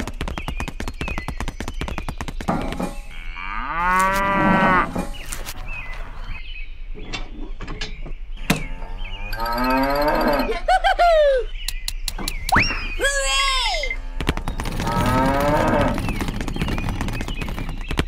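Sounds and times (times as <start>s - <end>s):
cow mooing: 3.1s - 5.0s, 9.4s - 10.5s, 14.8s - 16.0s
sharp clicks: 11.6s - 12.7s.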